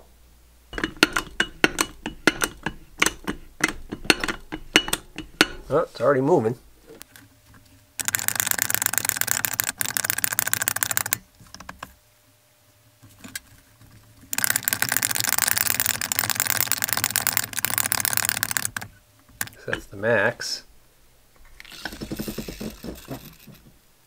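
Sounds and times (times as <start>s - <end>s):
hydraulic hand pump clicking: 0.8s - 5.7s, 8.0s - 11.9s, 14.3s - 19.9s.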